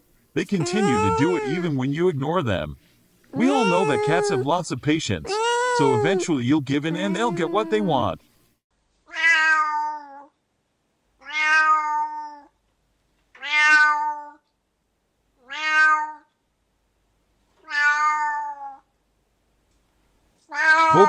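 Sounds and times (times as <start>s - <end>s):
cat meowing: 0.6s - 1.6s, 3.4s - 4.4s, 5.3s - 6.2s, 9.1s - 10.3s, 11.2s - 12.5s, 13.4s - 14.4s, 15.4s - 16.3s, 17.6s - 18.8s, 20.5s - 21.0s.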